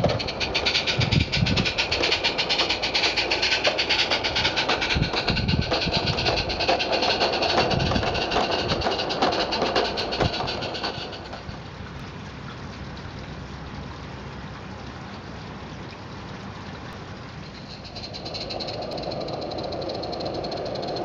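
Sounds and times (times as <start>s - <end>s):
small wagons rolling and clattering: 0.0s - 11.7s, 17.4s - 21.0s
model steam locomotive chuffing: 0.0s - 12.0s, 17.3s - 21.0s.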